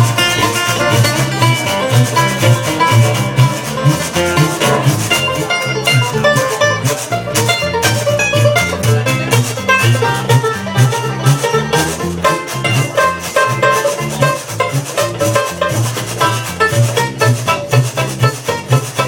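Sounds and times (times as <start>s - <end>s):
banjo picking: 0.0s - 19.0s
upright bass and jug notes: 0.0s - 19.0s
washboard scraping rhythm: 0.0s - 19.0s.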